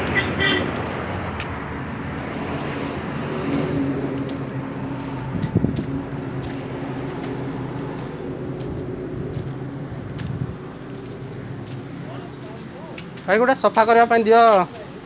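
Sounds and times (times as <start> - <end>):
vehicle engine droning: 0.0 - 12.9.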